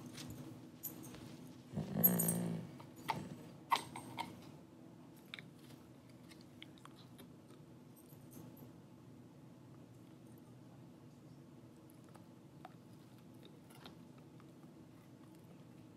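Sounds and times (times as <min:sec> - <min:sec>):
collar tags jingling: 0:00.0 - 0:03.2.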